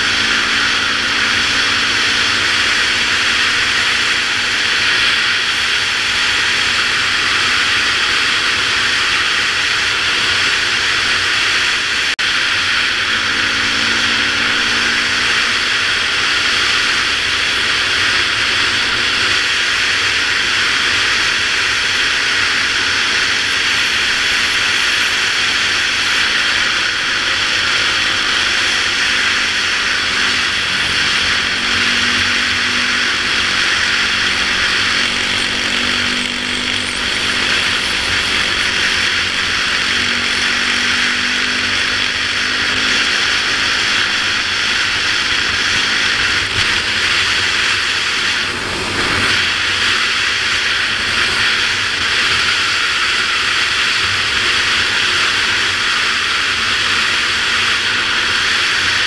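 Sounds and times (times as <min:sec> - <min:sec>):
motorcycle engine drone: 0:00.0 - 0:59.0.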